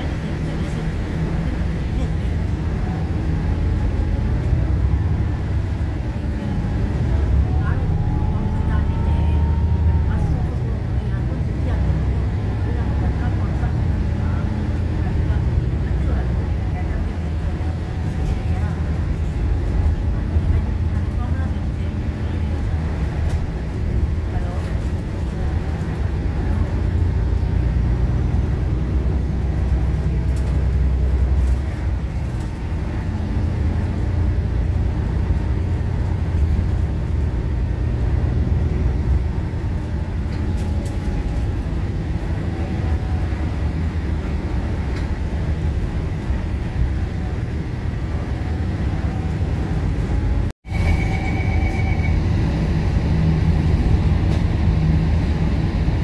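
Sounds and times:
bus engine and road rumble: 0.0 - 56.0
faint engine whine: 0.0 - 56.0
short beep: 50.7 - 52.3.

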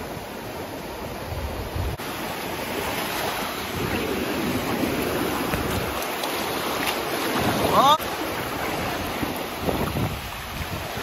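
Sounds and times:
small waves washing over sand: 0.0 - 11.0
wind buffeting microphone: 3.3 - 11.0.

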